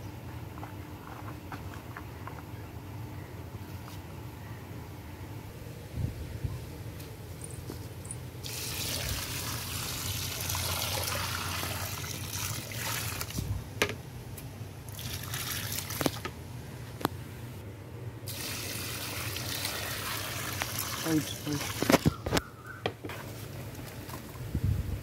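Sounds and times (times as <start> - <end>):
water pouring onto soil: 8.4 - 13.5, 14.9 - 16.2, 18.3 - 22.1.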